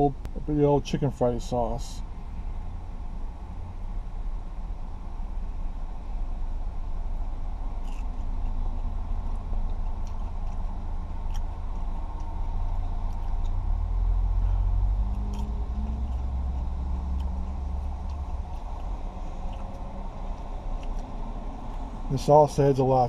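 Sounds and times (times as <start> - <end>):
car engine running: 0.0 - 23.0
chewing crunchy food: 7.7 - 13.6, 14.3 - 22.0.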